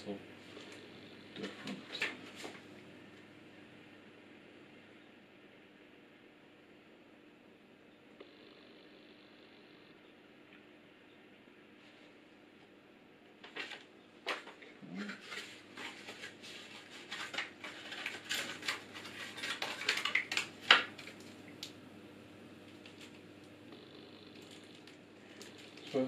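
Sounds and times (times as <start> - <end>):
cardboard and paper packaging rustling: 13.4 - 21.4.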